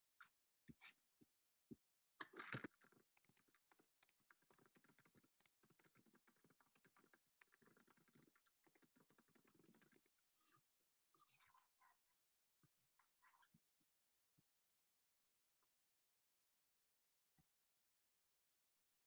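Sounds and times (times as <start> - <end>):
typing on computer keyboard: 2.4 - 10.1.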